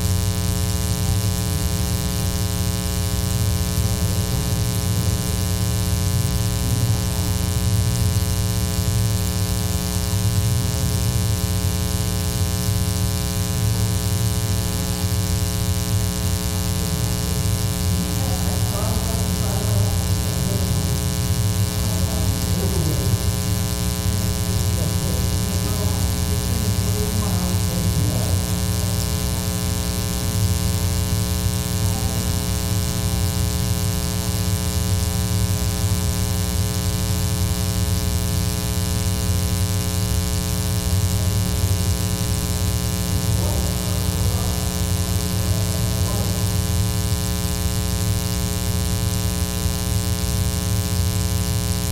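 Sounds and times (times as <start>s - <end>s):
electrical mains hum: 0.0s - 51.9s
faint voices: 16.1s - 30.3s, 31.6s - 33.4s, 42.9s - 47.0s.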